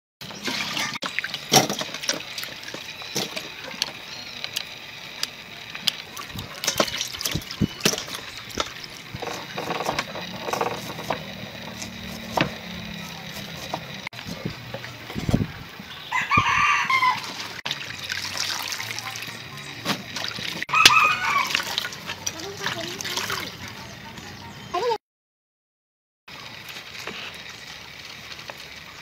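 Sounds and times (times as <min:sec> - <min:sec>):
water splashing into steel bowl: 0:06.1 - 0:09.0, 0:17.2 - 0:23.6.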